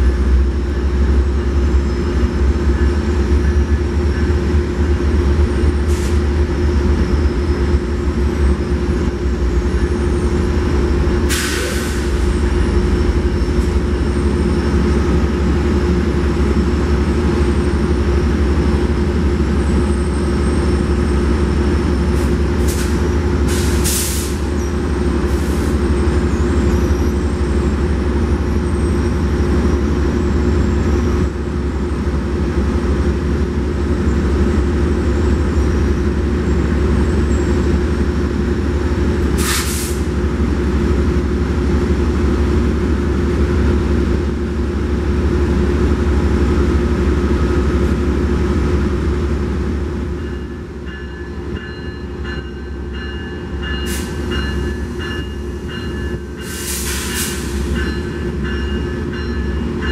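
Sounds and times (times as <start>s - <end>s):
locomotive rumble and hum: 0.0s - 59.9s
air brakes hissing: 5.8s - 6.3s, 11.2s - 12.4s, 22.2s - 24.6s, 25.3s - 25.8s, 39.4s - 40.2s, 53.9s - 54.3s, 56.4s - 57.8s.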